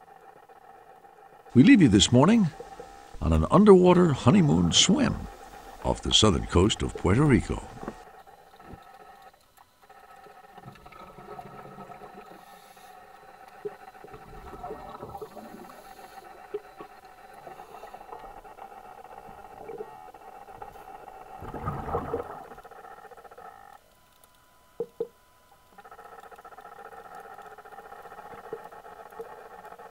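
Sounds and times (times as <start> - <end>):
underwater hum of held tones: 0.0 - 29.9.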